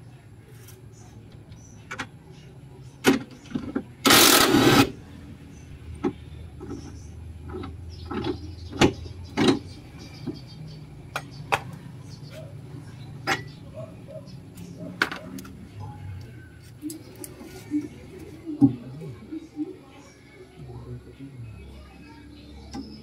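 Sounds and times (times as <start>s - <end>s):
impact wrench burst: 4.0s - 5.0s.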